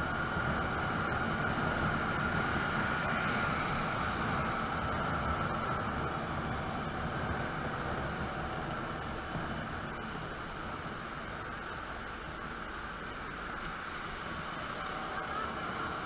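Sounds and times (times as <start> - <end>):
wind rushing over microphone: 0.0 - 11.5
scooter engine whine: 0.0 - 16.0.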